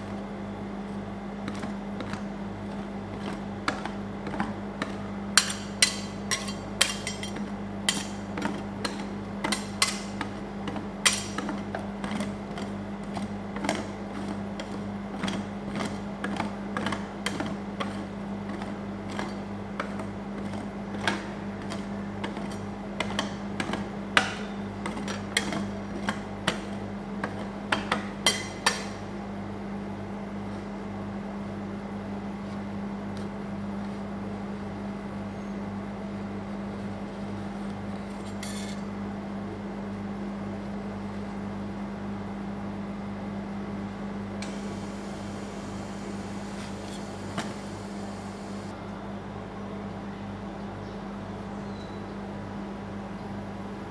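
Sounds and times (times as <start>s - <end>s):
steady low hum: 0.0s - 51.5s
metal spatulas tapping and scraping: 3.2s - 26.6s, 27.3s - 29.0s.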